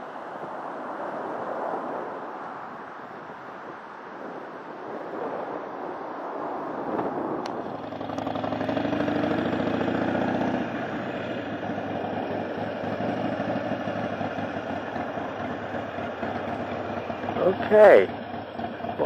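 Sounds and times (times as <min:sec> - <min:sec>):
motorcycle engine running: 0:06.9 - 0:19.0.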